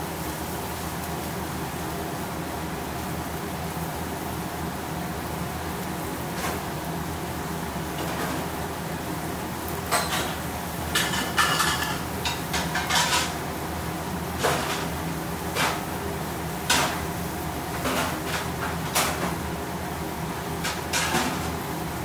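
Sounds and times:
metal utensils clinking: 11.0s - 13.4s.

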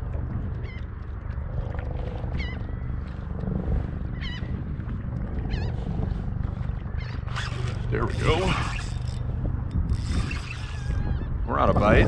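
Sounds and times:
wind buffeting microphone: 0.0s - 12.0s
bird calling high: 4.2s - 4.5s, 6.9s - 9.2s.

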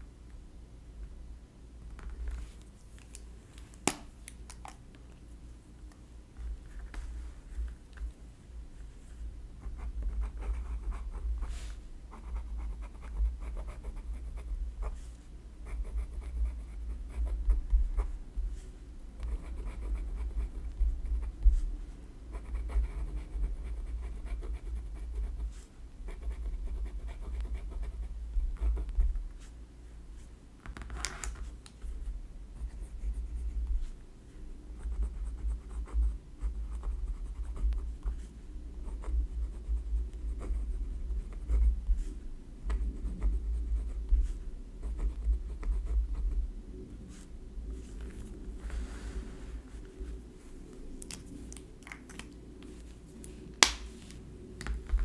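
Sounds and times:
pen scratching on paper: 9.6s - 18.2s, 19.3s - 21.6s, 38.9s - 42.1s.

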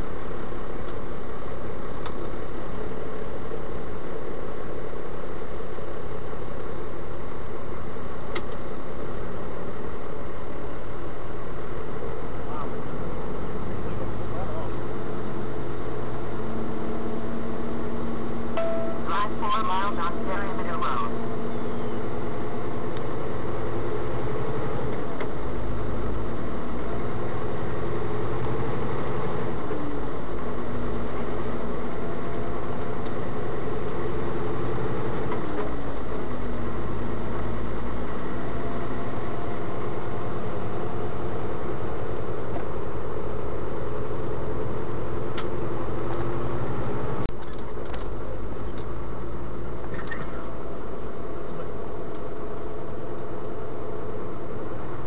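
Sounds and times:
road noise: 0.0s - 55.0s
vehicle engine running: 0.0s - 55.0s.

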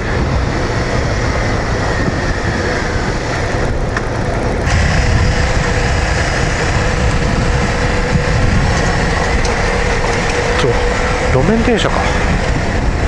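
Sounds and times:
motorcycle engine running: 0.0s - 13.0s
riding wind noise: 0.0s - 13.0s.

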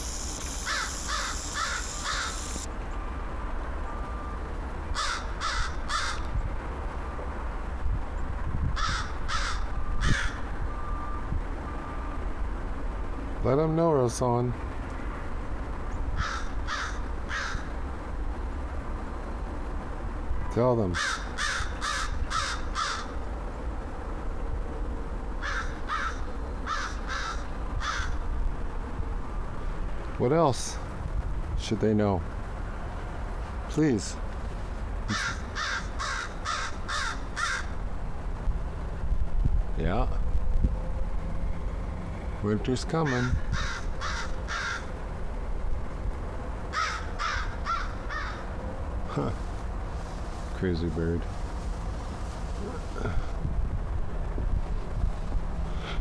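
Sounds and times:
crow cawing: 0.6s - 2.6s, 4.9s - 6.3s, 8.8s - 10.5s, 16.2s - 17.8s, 20.9s - 23.2s, 25.4s - 28.2s, 35.1s - 37.8s, 43.0s - 44.9s, 46.7s - 48.5s
steady low rumble: 14.4s - 56.0s.

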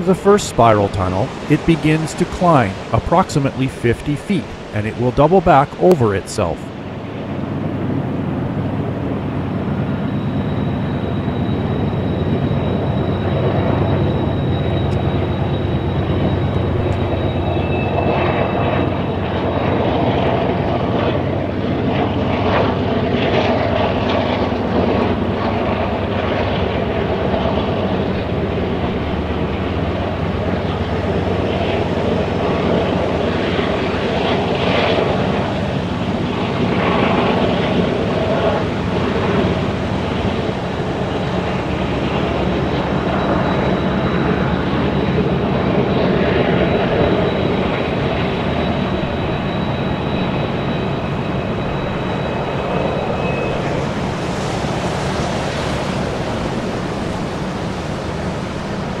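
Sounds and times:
diesel locomotives droning: 0.0s - 59.0s.

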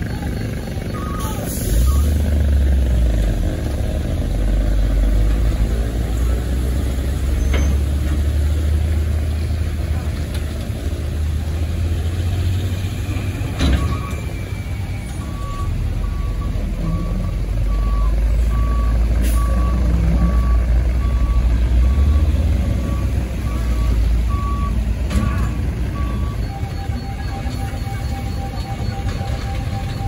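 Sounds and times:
reversing alarm beeping: 0.0s - 2.4s, 13.0s - 30.0s
diesel truck engine: 0.0s - 30.0s.

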